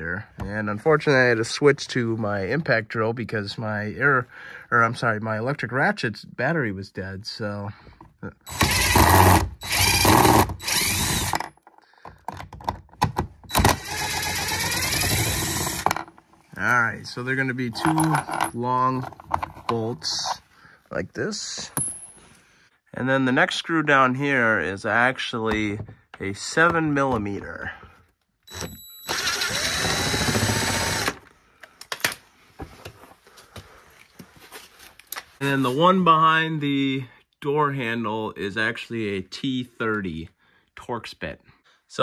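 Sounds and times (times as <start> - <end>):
cordless impact drill running: 8.5 - 11.5, 13.5 - 16.0, 28.5 - 31.2.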